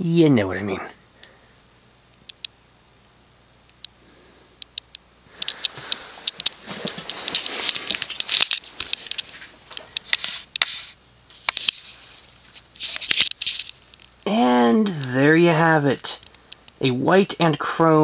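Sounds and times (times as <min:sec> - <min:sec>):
camera handling noise: 0:04.6 - 0:14.2.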